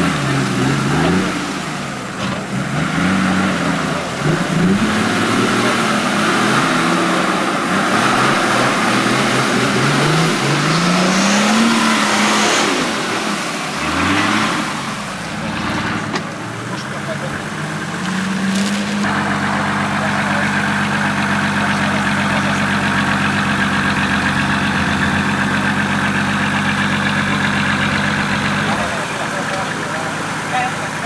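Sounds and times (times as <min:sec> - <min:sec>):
water churning and splashing: 0:00.0 - 0:19.1
truck engine revving: 0:00.0 - 0:31.0.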